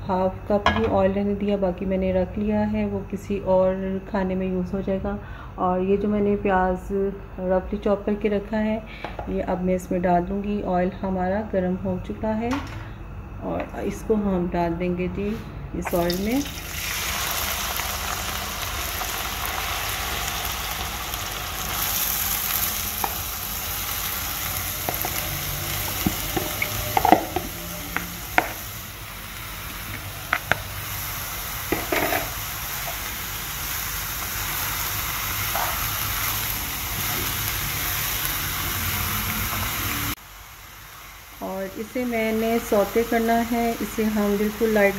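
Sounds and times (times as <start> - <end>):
onions sizzling in oil: 15.9 - 44.9
utensils knocking against pan: 26.0 - 28.6, 31.7 - 32.3.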